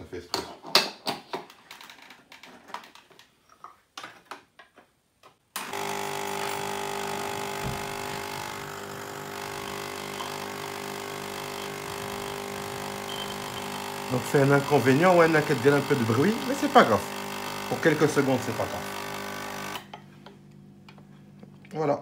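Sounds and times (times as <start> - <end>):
espresso machine pump humming: 5.6 - 19.9.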